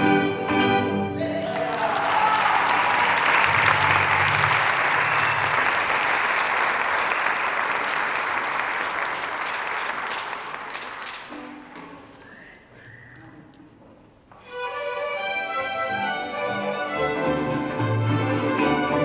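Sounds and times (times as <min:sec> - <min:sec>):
audience applauding: 0:01.2 - 0:13.3.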